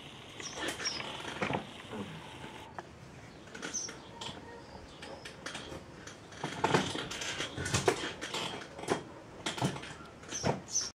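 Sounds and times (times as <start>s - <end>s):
small birds chirping: 0.1s - 6.4s, 10.0s - 10.9s.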